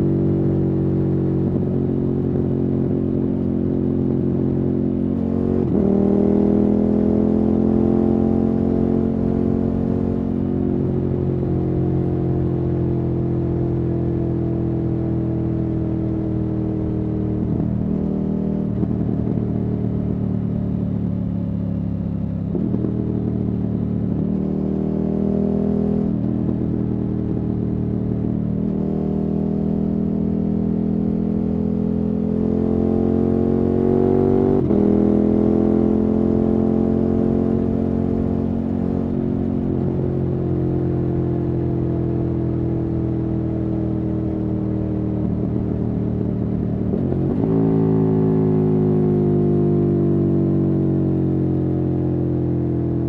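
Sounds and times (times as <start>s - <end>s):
motorcycle engine revving: 1.1s - 11.0s, 22.2s - 53.0s.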